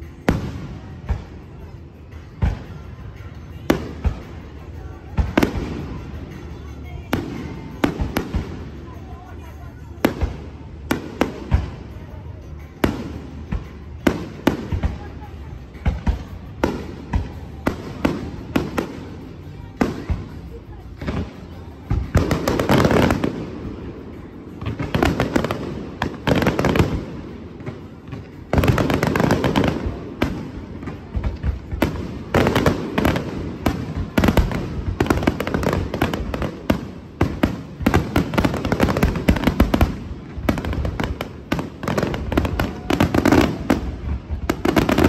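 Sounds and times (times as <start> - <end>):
fireworks bangs and cracks: 0.0 - 45.0.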